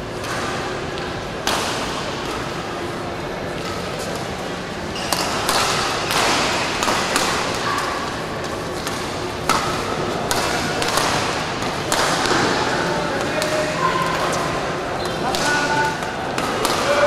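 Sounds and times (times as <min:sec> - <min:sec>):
sports hall noise: 0:00.0 - 0:17.0
racket hitting shuttlecock: 0:05.0 - 0:08.1, 0:08.7 - 0:14.3, 0:15.0 - 0:17.0.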